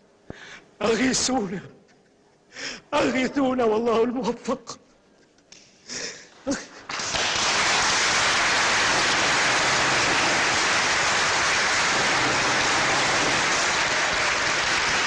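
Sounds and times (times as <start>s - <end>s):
crowd applauding: 6.8s - 15.0s.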